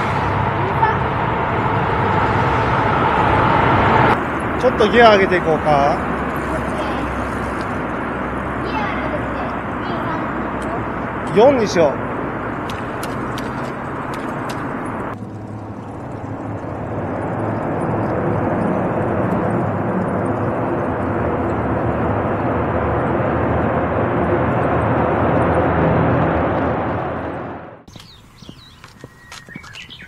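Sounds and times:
bicycle road noise: 0.0 - 30.0
rushing wind: 0.0 - 30.0
bicycle gears clicking: 4.2 - 23.0.

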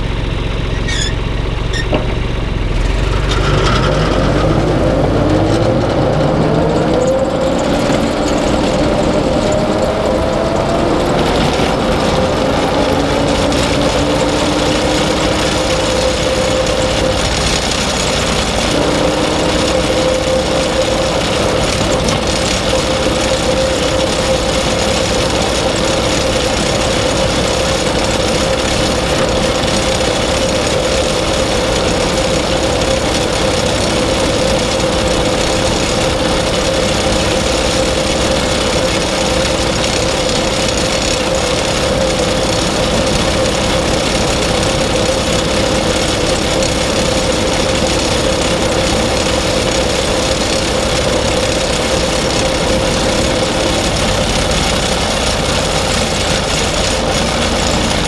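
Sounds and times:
machine whine: 0.0 - 58.0
tractor engine running: 0.0 - 58.0.

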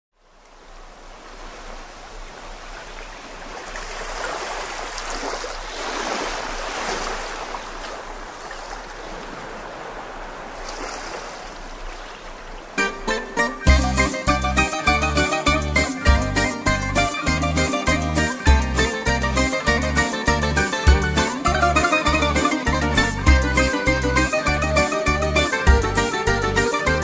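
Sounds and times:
music: 12.8 - 27.0.

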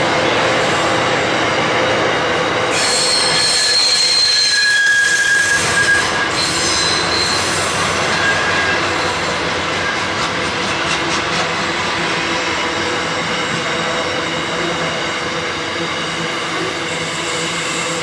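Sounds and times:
train wheels rumbling on rail: 0.0 - 18.0
shrill wheel squeals: 2.7 - 10.0.

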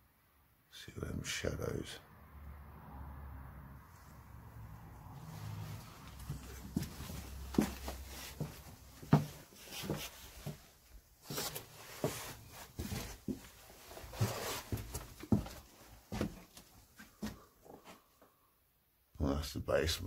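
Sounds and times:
footsteps and scuffs on floor: 5.0 - 18.4.

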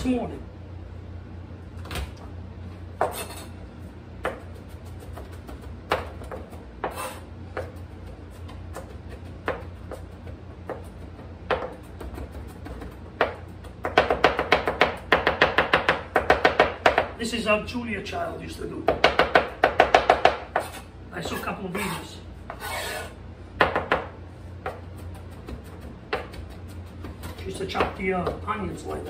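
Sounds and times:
steady low hum: 0.0 - 29.0
knife chopping on cutting board: 4.2 - 17.1, 22.5 - 28.4.

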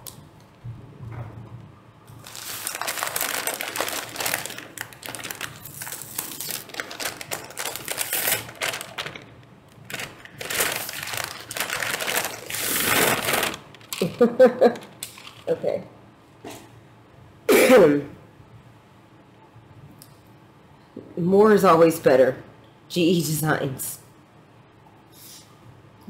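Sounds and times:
paper bag rustling and crinkling: 2.2 - 15.5.

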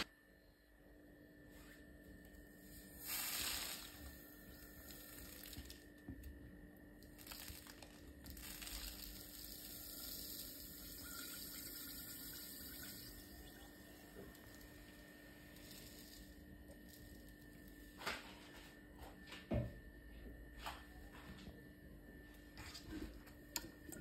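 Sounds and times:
sugar pouring into jar: 2.8 - 5.8, 7.0 - 17.4.

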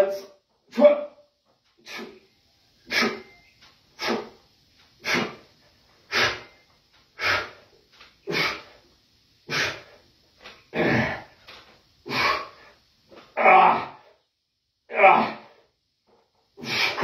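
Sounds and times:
man breathing hard: 1.8 - 3.3, 3.9 - 4.4, 5.0 - 10.1.

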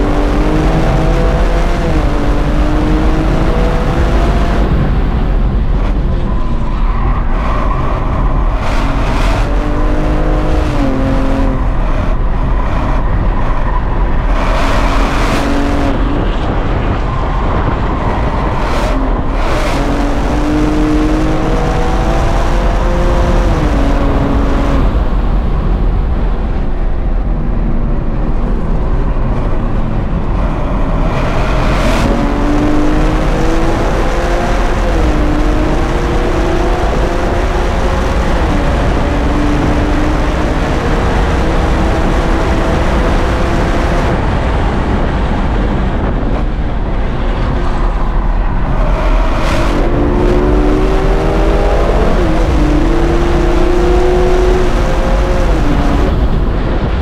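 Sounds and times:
car engine revving in cabin: 0.0 - 5.0, 7.4 - 13.1, 18.6 - 25.2, 30.2 - 44.2, 46.0 - 56.4.

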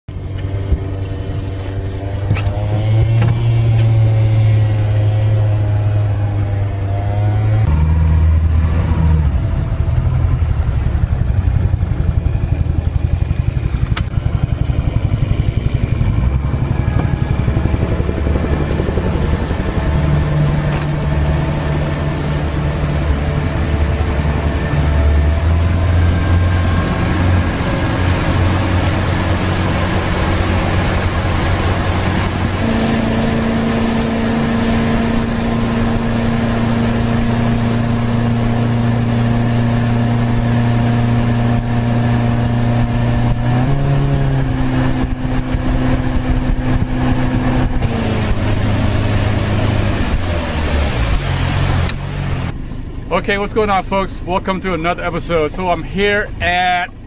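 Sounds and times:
outboard motor running: 0.1 - 57.0
rushing water: 15.1 - 52.6.

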